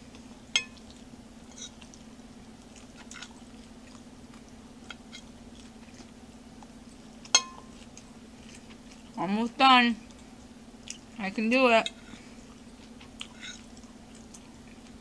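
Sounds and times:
steady low hum: 0.0s - 15.0s
fork striking ceramic plate: 0.6s - 0.8s, 7.3s - 7.7s
chewing mouth smacks: 0.8s - 9.2s, 10.0s - 11.1s, 12.4s - 15.0s.

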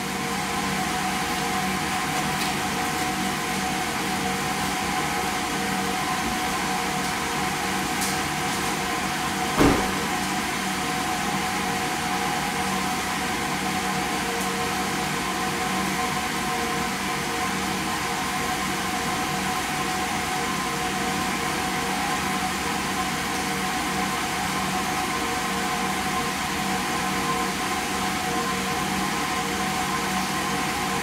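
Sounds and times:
steady mechanical hum: 0.0s - 31.0s
loud thump: 9.6s - 10.0s.

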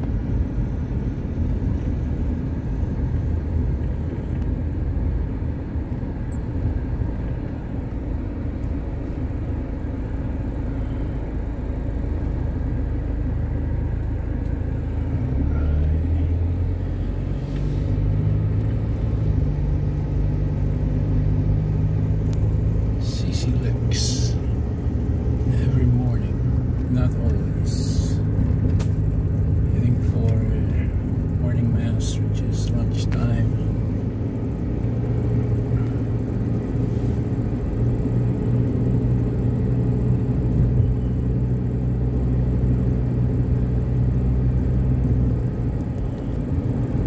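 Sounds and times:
car engine accelerating: 0.0s - 47.0s
road rumble inside car: 0.0s - 47.0s.

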